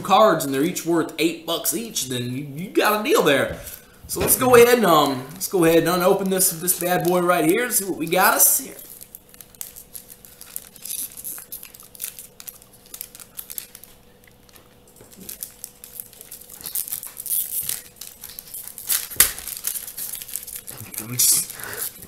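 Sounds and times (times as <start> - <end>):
foil wrapper crinkling and tearing: 3.6 - 22.0
sharp foil snap: 18.7 - 20.1.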